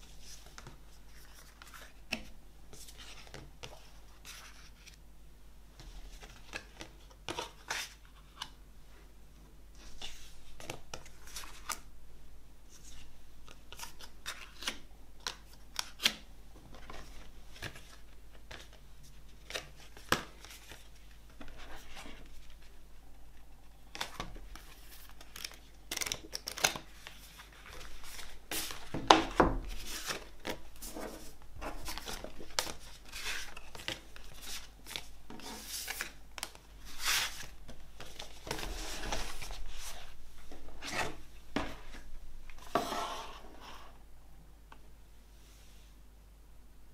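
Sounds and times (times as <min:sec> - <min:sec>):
cardboard and paper rustling: 0:24.0 - 0:42.9.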